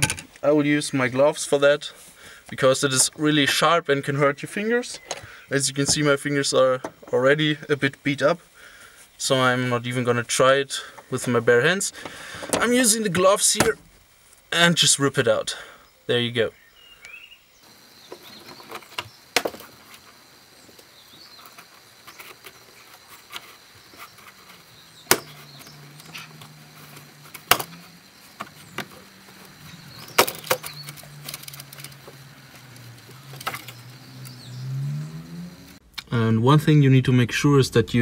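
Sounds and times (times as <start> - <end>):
plastic rustling and knocking: 12.0 - 12.8, 18.1 - 33.8.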